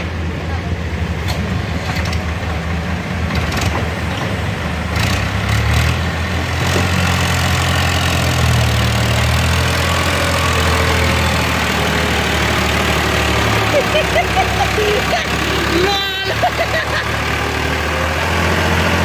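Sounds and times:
excavator working: 0.0 - 19.0
tractor engine idling: 0.0 - 19.0.

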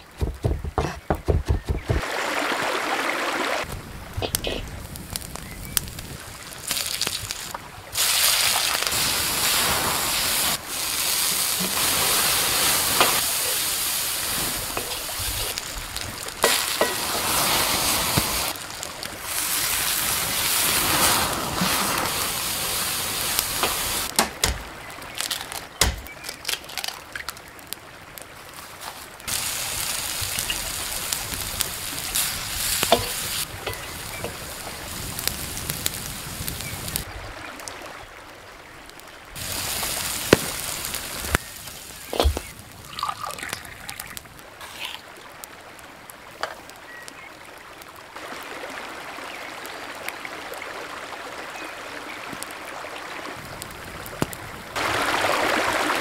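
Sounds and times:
vegetables sizzling in oil: 6.6 - 24.1, 28.9 - 37.0, 39.4 - 45.0.

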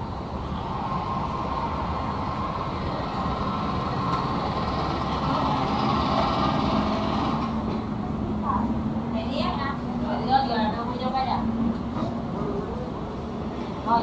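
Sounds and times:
heavy vehicle engine running: 0.0 - 10.9.

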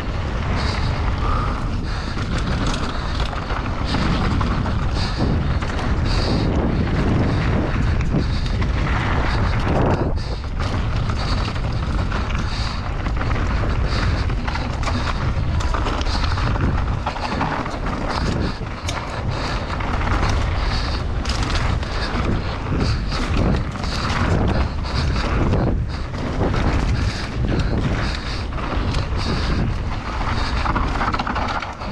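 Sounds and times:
bike knocks and rattles: 0.0 - 31.9
tyres running over dirt and stones: 0.0 - 31.9
wind buffeting microphone: 0.0 - 31.9.

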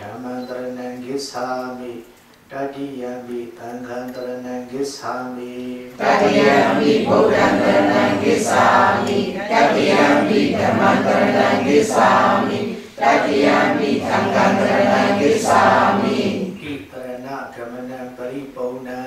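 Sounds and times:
congregation chanting in unison: 5.5 - 16.9.

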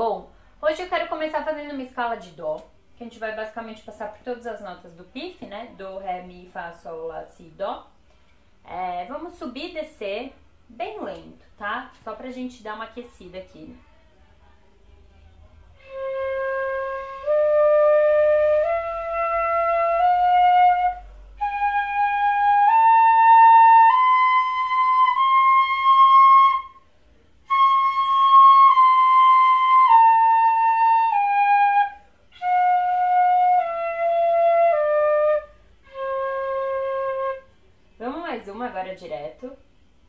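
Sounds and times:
fife playing a slow scale: 15.8 - 26.8.

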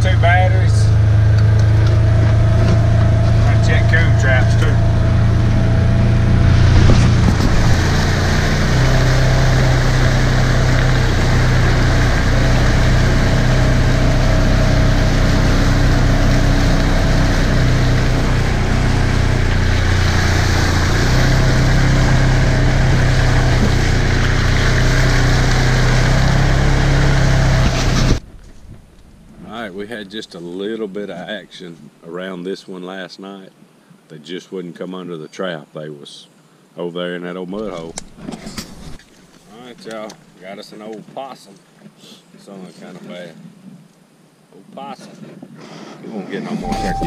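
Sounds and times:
chassis rattling: 0.0 - 26.4
tyres splashing through muddy water: 0.0 - 28.2
utility vehicle engine running: 0.0 - 28.2, 46.6 - 47.0.

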